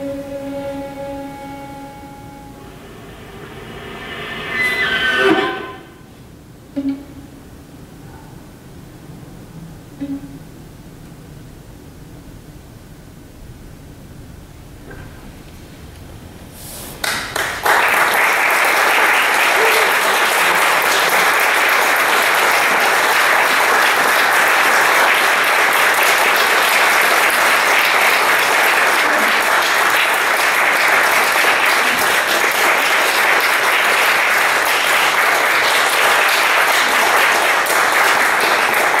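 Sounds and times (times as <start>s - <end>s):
audience applauding: 17.0s - 39.0s.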